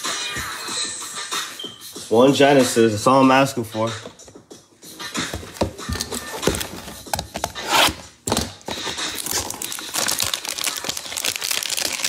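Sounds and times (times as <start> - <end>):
packaging clicks and knocks: 5.3 - 12.0
wrapper rustling and crinkling: 8.8 - 12.0.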